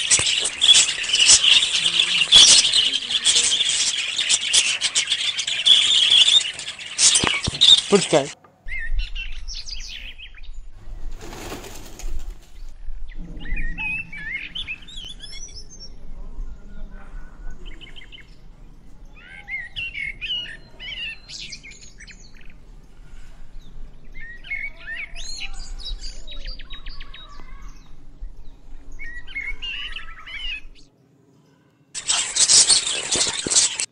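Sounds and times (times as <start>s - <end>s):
wings flapping: 0.0s - 8.4s, 10.8s - 12.8s, 32.0s - 33.9s
small birds chirping: 0.0s - 33.9s.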